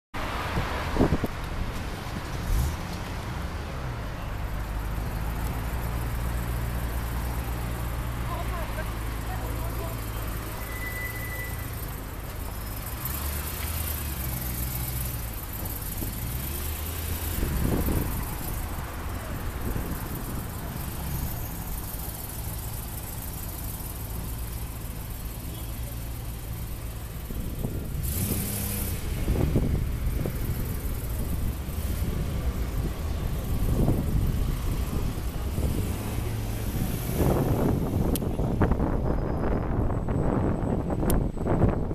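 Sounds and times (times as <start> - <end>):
passing street traffic: 0.1 - 41.9
car engine idling: 4.2 - 28.0.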